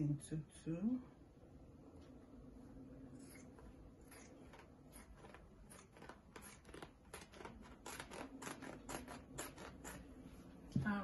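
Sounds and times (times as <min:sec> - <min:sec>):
scissors snipping fabric: 0:04.1 - 0:10.0.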